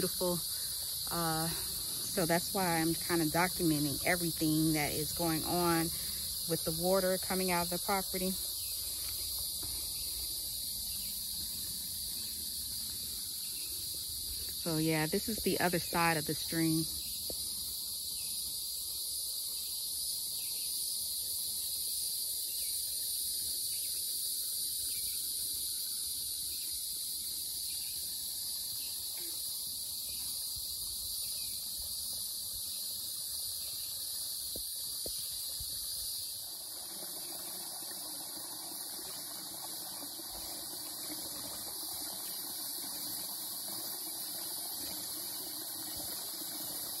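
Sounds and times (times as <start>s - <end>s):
insects chorus: 0.0s - 47.0s
stream flowing: 35.4s - 47.0s.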